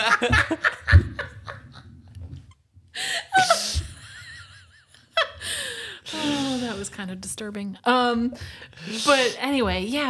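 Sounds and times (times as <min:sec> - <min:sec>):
people laughing: 0:00.0 - 0:01.9.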